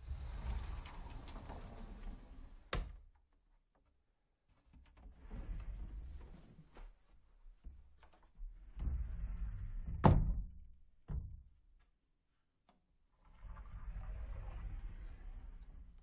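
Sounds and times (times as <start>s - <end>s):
sliding door rolling on track: 0.0s - 2.7s, 13.2s - 16.0s.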